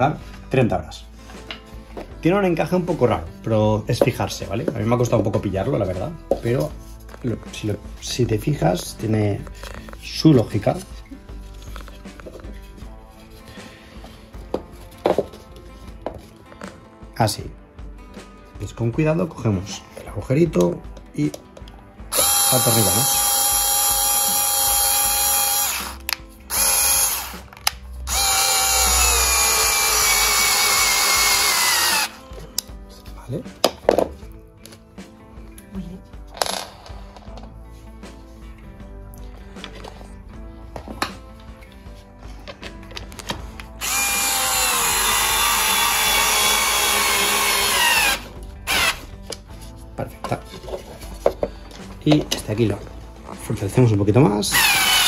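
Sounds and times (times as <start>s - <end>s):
cordless drill driving screw into wood: 22.1s - 32.2s, 43.8s - 49.0s, 54.5s - 55.0s.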